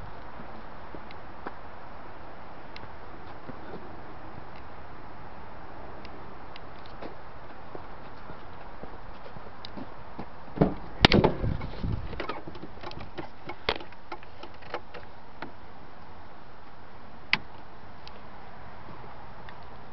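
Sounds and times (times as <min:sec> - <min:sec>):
truck door opening: 0:10.5 - 0:15.0.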